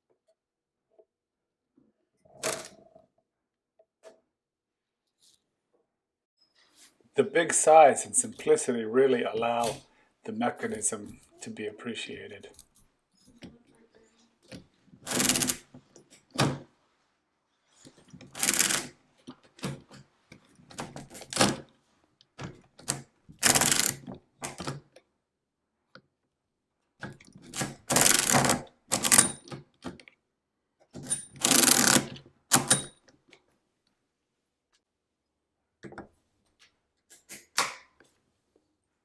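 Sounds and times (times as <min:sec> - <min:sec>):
mechanical calculator clattering: 0:15.1 - 0:15.6, 0:18.3 - 0:18.9, 0:23.4 - 0:24.0, 0:27.9 - 0:29.4, 0:31.1 - 0:32.9.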